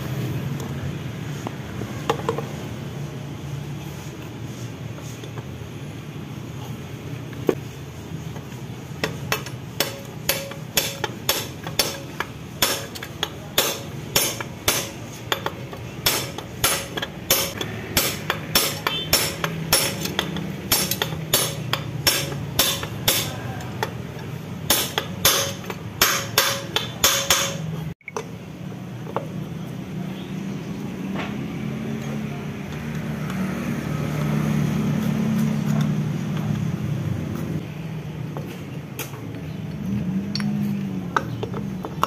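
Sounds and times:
hammer on metal drift: 0:13.6 - 0:23.6, 0:24.7 - 0:27.7.

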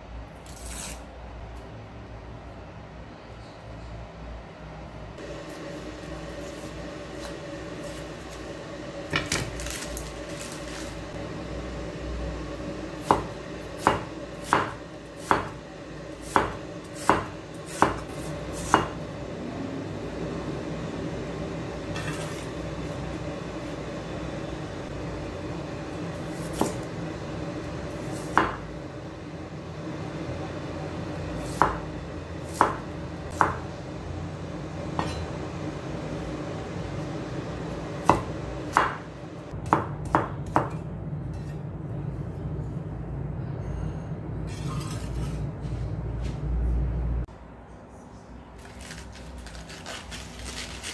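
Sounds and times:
low hum: 0:01.3 - 0:17.6, 0:18.3 - 0:39.5
knife chopping on wooden board: 0:13.1 - 0:15.6, 0:16.2 - 0:19.0.

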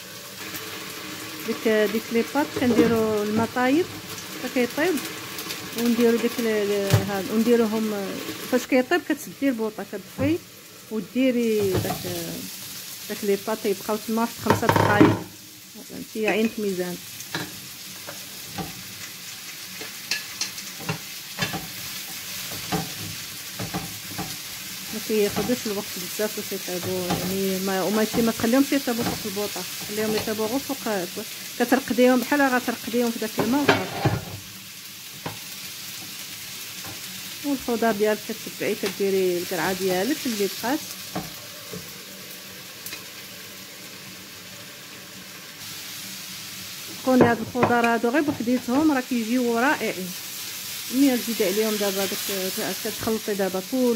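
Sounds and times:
vegetables sizzling in oil: 0:00.0 - 0:53.9
wooden spatula scraping pan: 0:33.4 - 0:34.4.

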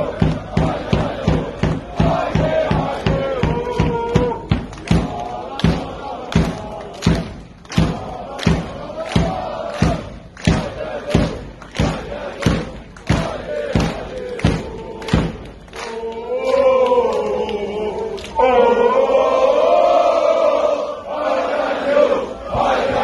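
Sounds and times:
loud regular drum beat: 0:00.0 - 0:15.5
crowd chanting in unison: 0:00.0 - 0:23.0.

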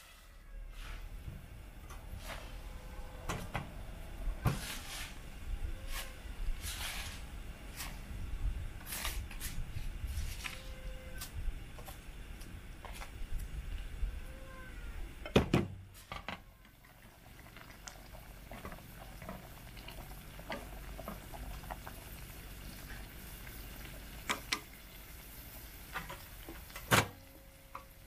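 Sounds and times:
soup bubbling in a pot: 0:16.2 - 0:28.0.

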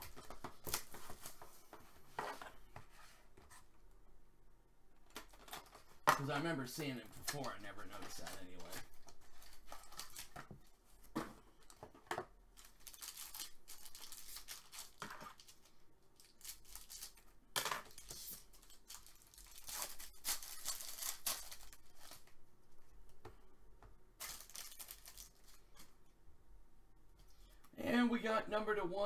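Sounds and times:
foil wrapper tearing and crinkling: 0:08.1 - 0:10.4, 0:12.6 - 0:17.3, 0:17.9 - 0:22.3, 0:24.2 - 0:25.6.

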